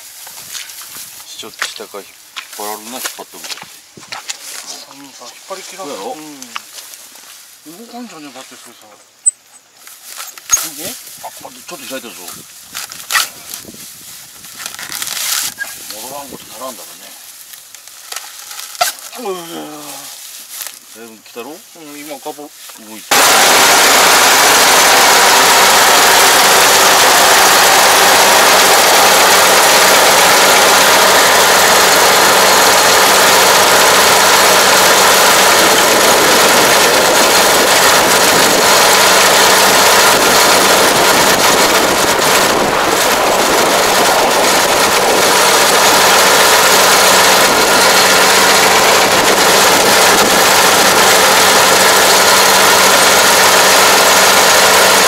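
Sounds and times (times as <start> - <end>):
combine harvester engine running: 23.1 - 55.0.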